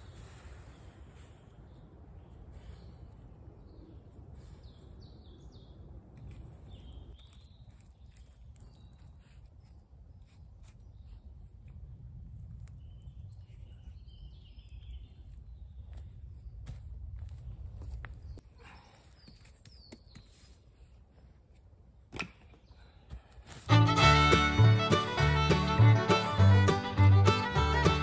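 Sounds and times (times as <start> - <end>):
small birds chirping: 0.0 - 11.6, 12.6 - 16.8
wind rumble on microphone: 10.9 - 18.4.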